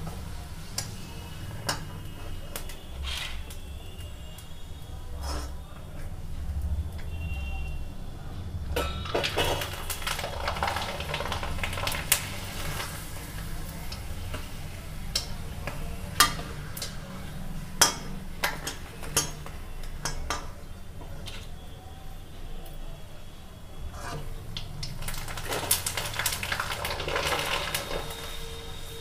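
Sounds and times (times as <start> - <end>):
oil sizzling: 9.1 - 22.8, 23.7 - 29.0.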